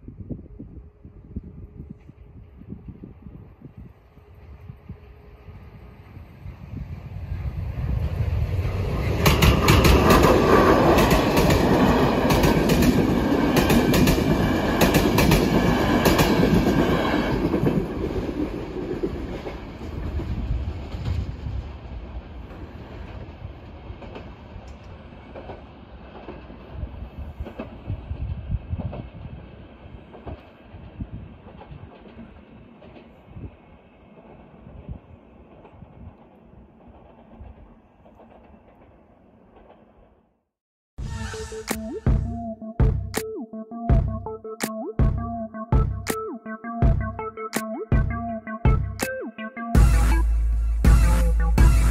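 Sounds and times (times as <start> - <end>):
passing train rumble: 0.0 - 40.3.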